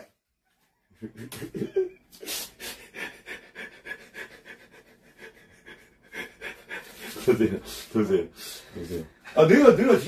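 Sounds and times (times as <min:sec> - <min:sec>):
person breathing hard: 0:02.2 - 0:09.2.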